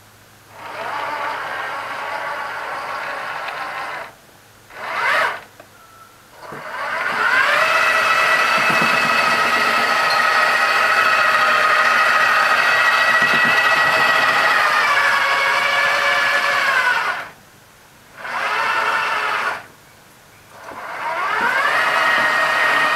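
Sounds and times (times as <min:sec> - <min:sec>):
motor and gearing whine: 0:00.5 - 0:17.4, 0:18.2 - 0:19.7, 0:20.5 - 0:22.9
bearing ring grinding: 0:06.4 - 0:17.2, 0:20.6 - 0:22.9.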